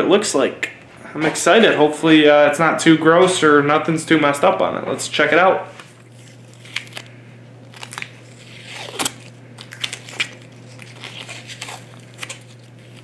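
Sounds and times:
tape peeling and crackling: 5.8 - 13.0.

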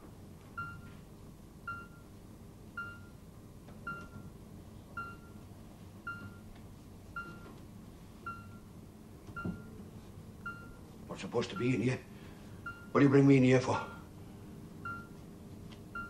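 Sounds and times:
heart monitor beeping: 0.6 - 1.0, 1.6 - 2.2, 2.8 - 3.2, 3.8 - 4.3, 4.9 - 6.5, 7.1 - 7.6, 8.2 - 8.7, 9.3 - 9.8, 10.4 - 11.8, 12.6 - 13.1, 14.8 - 15.3.

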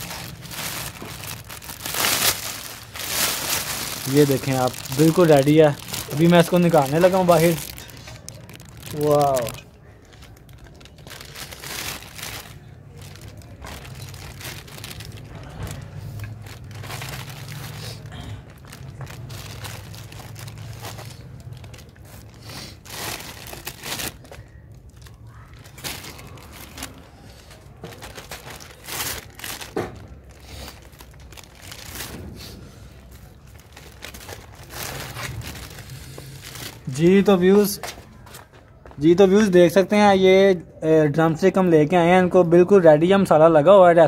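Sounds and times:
plastic bag crinkling: 0.0 - 39.2.

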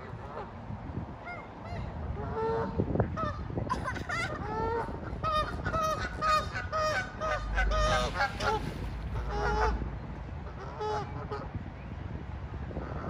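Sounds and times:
geese honking: 1.3 - 11.6.

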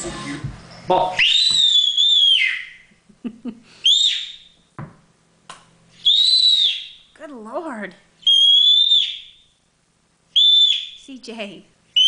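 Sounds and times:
toddler squealing: 6.0 - 6.8.

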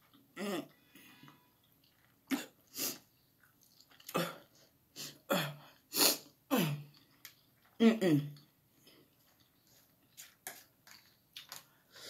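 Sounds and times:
person coughing: 2.3 - 2.6, 4.1 - 4.5.

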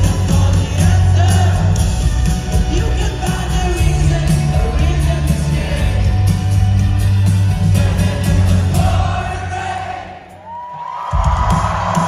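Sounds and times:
heavy bass: 0.0 - 9.4
drum beat: 0.0 - 9.6, 11.1 - 12.0
live rock band: 0.0 - 9.9.

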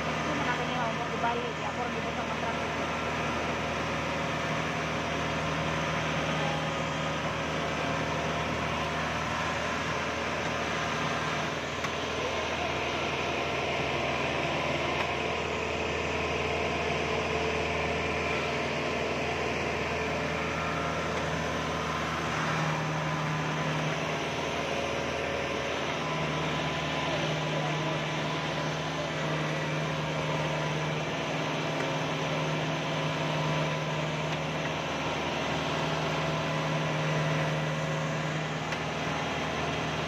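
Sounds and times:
combine harvester engine droning: 0.0 - 40.0.

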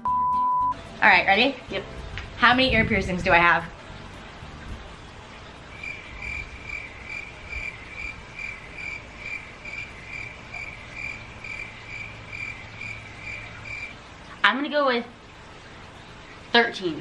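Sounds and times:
cricket chirping: 5.8 - 14.0.

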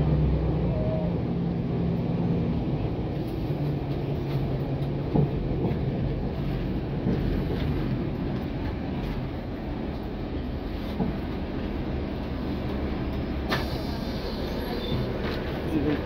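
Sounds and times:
bus engine and road rumble: 0.0 - 16.0.

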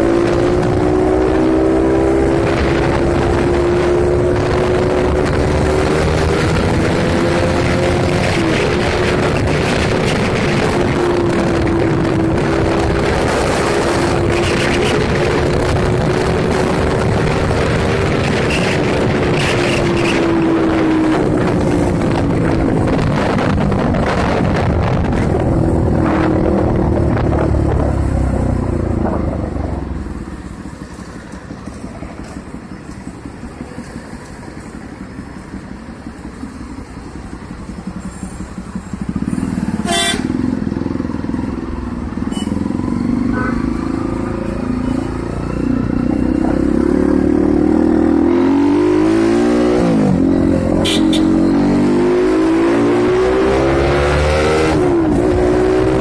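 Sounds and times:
wind rush: 0.0 - 30.0
motorcycle engine revving: 0.0 - 56.0.

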